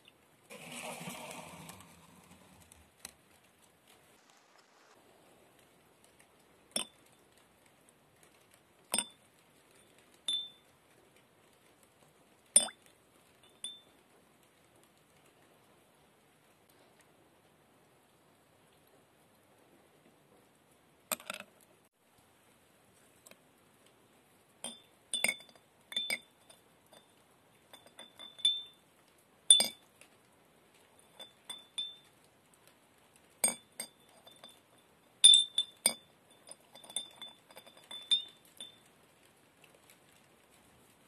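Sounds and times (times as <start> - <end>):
metal piece clinking on glass jar: 10.3 - 10.5, 24.6 - 27.0, 27.7 - 28.8, 29.5 - 29.8, 31.1 - 32.1, 33.4 - 38.8.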